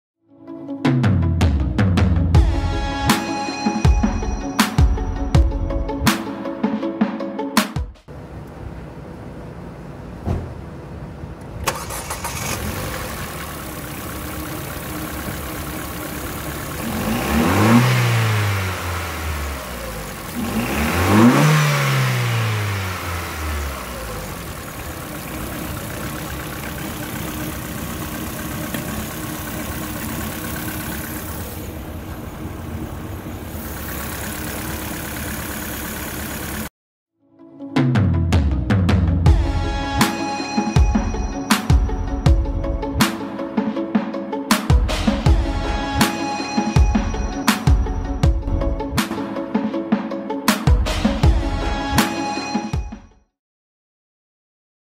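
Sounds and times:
car engine revving: 8.1 - 36.7
car engine starting and idling: 8.1 - 36.7.

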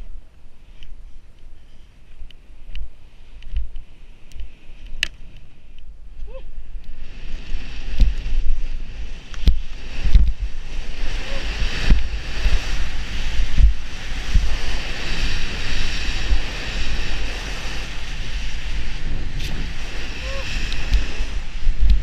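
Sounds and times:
wind on microphone: 0.0 - 22.0
skis hissing through snow: 7.0 - 22.0
low thumps of skis: 7.4 - 11.0.

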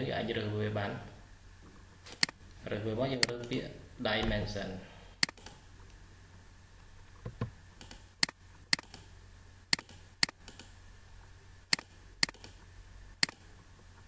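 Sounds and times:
faint low hum: 0.0 - 14.0
soft thuds: 4.2 - 4.6.

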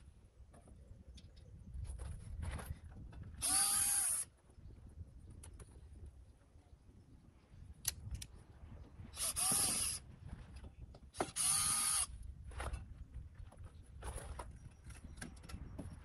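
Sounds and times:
cordless drill spinning: 3.4 - 4.3, 9.2 - 10.0, 11.2 - 12.1.

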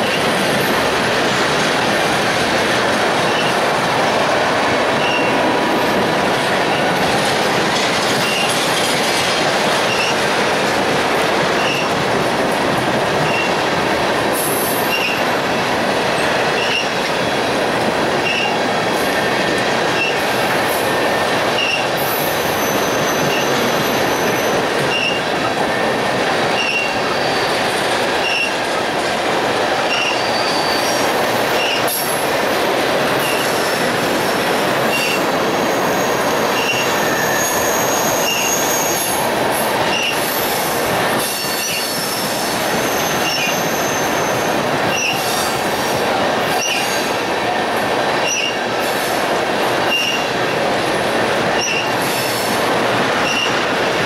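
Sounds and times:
train rolling rumble: 0.0 - 54.0
wheels clacking over rails: 0.0 - 54.0
high wheel squeal: 3.3 - 3.6, 5.0 - 5.4, 8.2 - 8.6, 9.8 - 10.2, 11.6 - 11.9, 13.2 - 13.6, 14.4 - 15.3, 16.2 - 17.0, 18.2 - 18.6, 21.1 - 25.3, 26.5 - 28.6, 29.9 - 32.2, 33.2 - 34.0, 34.8 - 39.3, 39.9 - 45.6, 46.5 - 47.2, 48.2 - 49.1, 49.8 - 50.3, 51.6 - 52.6, 53.2 - 53.6.

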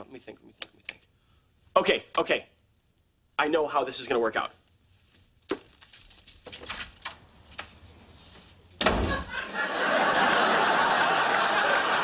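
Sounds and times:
door shutting with heavy thud: 8.8 - 9.4
studio audience laughter: 9.1 - 12.0.

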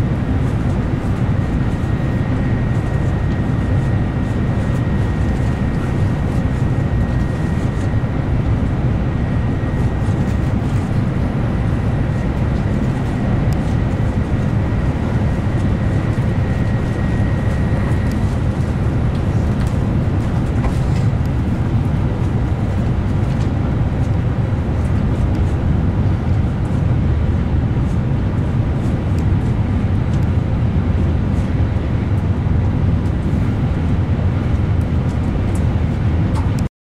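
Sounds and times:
train interior running rumble: 0.0 - 36.7.

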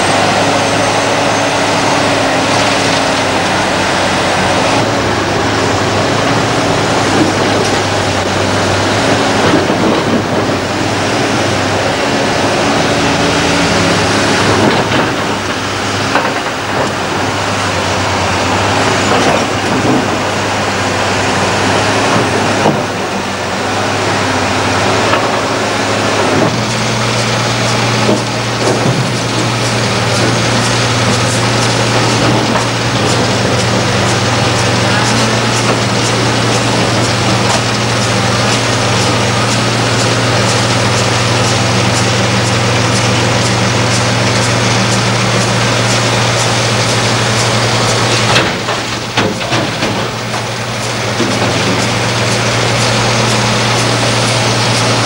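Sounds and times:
heavy diesel engines droning: 0.0 - 55.0.

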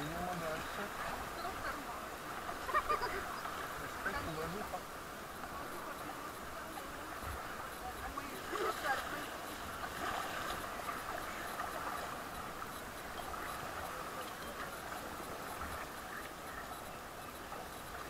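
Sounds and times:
paddles stroking through water: 0.0 - 18.0
water splashing along raft: 0.0 - 18.0.

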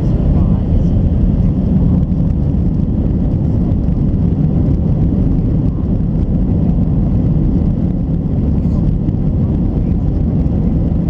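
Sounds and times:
jet engines roaring: 0.0 - 11.0
wheels running on runway: 0.0 - 11.0.

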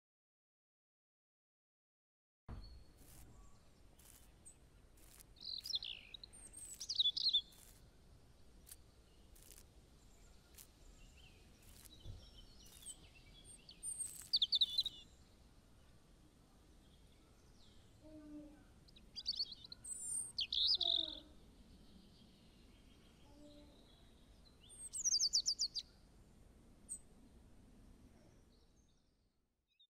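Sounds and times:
birds chirping: 2.5 - 16.0, 16.7 - 25.9
faint outdoor hiss: 2.5 - 29.6
faint clicks: 8.6 - 9.7, 11.6 - 14.9.

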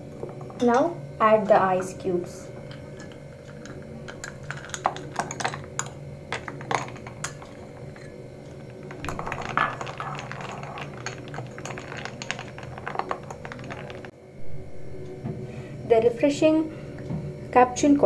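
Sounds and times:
ice and spoon clinking in mug: 8.9 - 14.1.

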